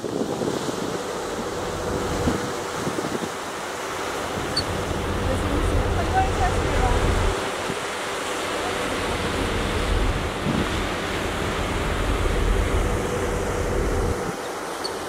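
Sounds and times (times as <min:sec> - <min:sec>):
wind buffeting the microphone: 0:00.0 - 0:03.6, 0:09.0 - 0:14.4
sea rushing: 0:00.0 - 0:15.0
ship's churning wake: 0:00.0 - 0:15.0.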